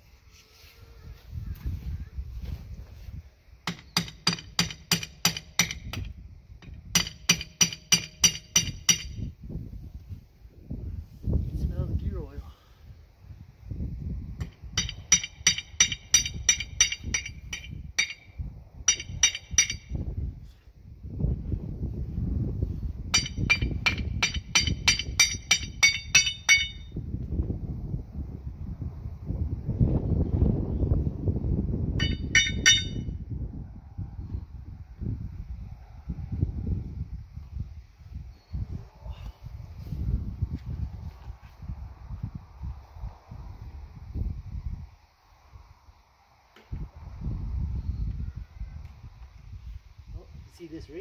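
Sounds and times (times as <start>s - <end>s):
hammer striking steel chisel: 3.7s - 9.2s, 14.4s - 18.3s, 18.9s - 20.0s, 23.2s - 26.9s, 32.0s - 33.1s.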